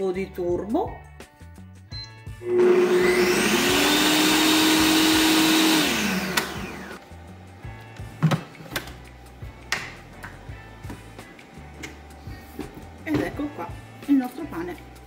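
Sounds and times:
kitchen blender blade whining: 2.4s - 7.0s.

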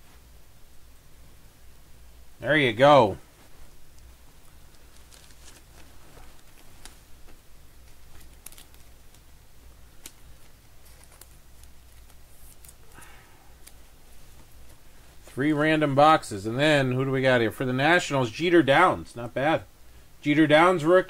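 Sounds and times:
low steady hum: 0.0s - 21.0s
plastic sleeve rustling: 3.3s - 15.4s.

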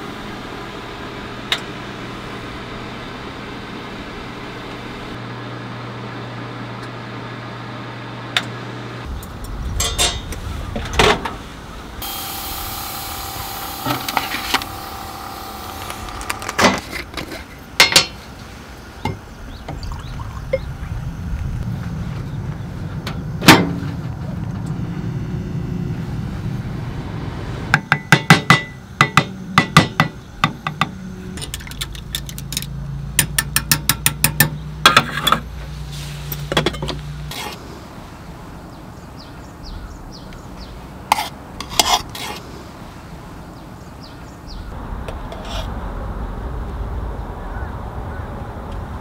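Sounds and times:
low steady hum: 0.0s - 27.8s.

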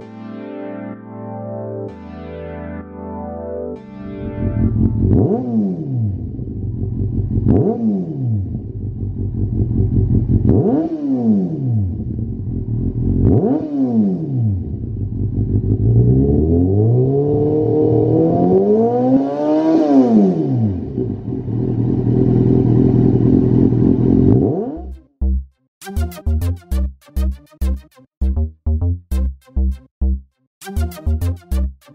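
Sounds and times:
motorcycle engine idling and revving: 4.2s - 25.2s.

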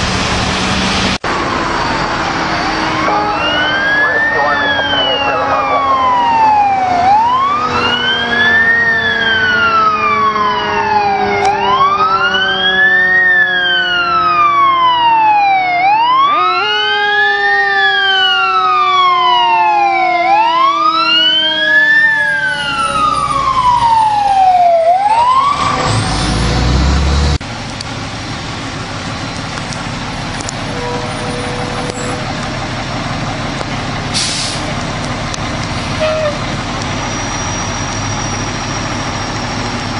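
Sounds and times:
fire truck siren wailing: 0.0s - 39.9s
truck engine: 0.0s - 39.9s
lower siren tone sliding down: 1.3s - 27.4s.

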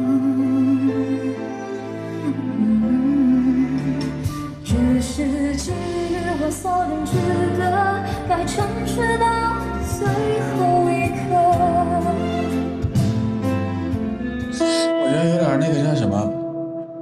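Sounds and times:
woman singing a pop ballad: 2.2s - 12.8s
band accompaniment with drums: 9.8s - 14.9s.

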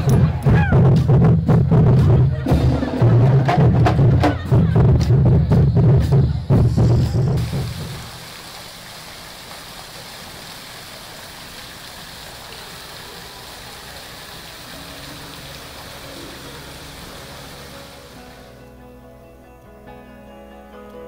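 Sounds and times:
music: 0.0s - 8.1s, 14.7s - 21.0s
indoor waterfall splashing: 7.4s - 18.5s.

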